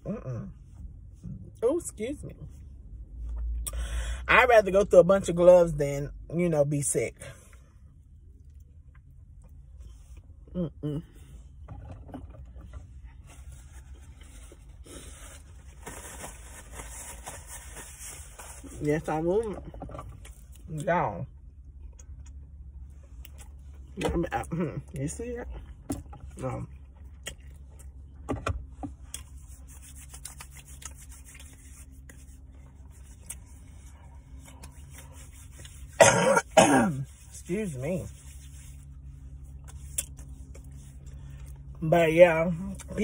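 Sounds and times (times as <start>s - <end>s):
low steady hum: 0.0s - 43.0s
paper bag rustling and crinkling: 13.5s - 18.8s
hands rubbing together: 29.4s - 32.4s.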